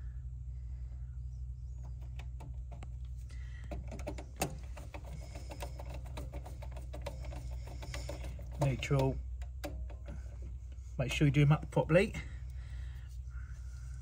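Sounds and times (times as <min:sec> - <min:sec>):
steady low hum: 0:00.0 - 0:14.0
screwdriver clicking and scraping: 0:03.7 - 0:10.6.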